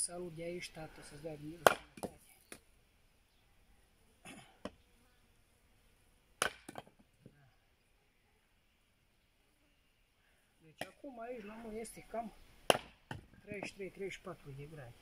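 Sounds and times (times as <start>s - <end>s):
axe striking firewood: 1.6s - 2.6s, 6.4s - 7.1s, 12.6s - 13.8s.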